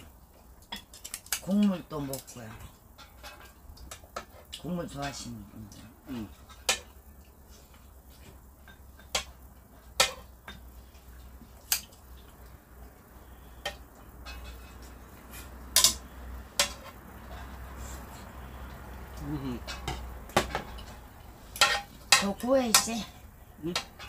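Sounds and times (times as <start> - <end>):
steady low hum: 0.0 - 24.0
metal tongs clinking against pan: 15.8 - 17.0, 21.6 - 23.1, 23.7 - 24.0.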